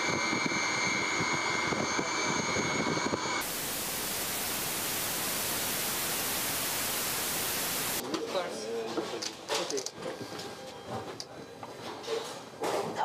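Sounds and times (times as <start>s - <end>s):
jet engines high whine: 0.0s - 8.0s
rushing noise: 3.4s - 8.0s
steady hiss: 3.4s - 8.0s.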